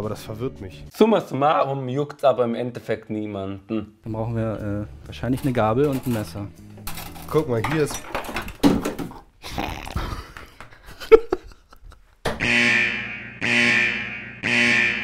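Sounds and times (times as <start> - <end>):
metal cutlery clattering: 5.3 - 9.2
buzzing alarm: 12.4 - 15.0.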